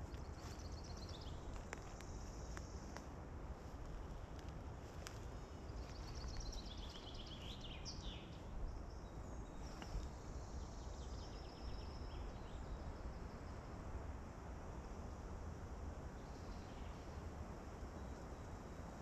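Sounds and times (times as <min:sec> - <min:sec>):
forest wind hiss: 0:00.0 - 0:19.0
faint clicks: 0:01.5 - 0:03.1.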